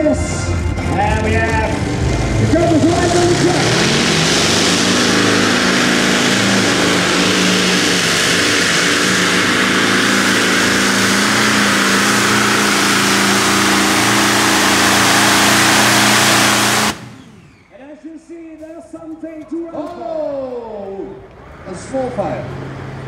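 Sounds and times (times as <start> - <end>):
tractor engine at high revs: 0.0 - 17.8.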